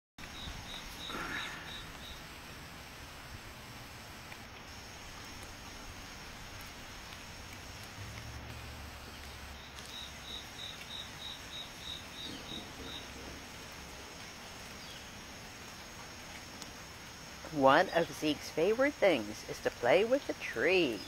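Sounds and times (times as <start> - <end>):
cricket chirping: 0.2 - 2.4, 8.9 - 13.6
faint steady hiss: 0.2 - 21.0.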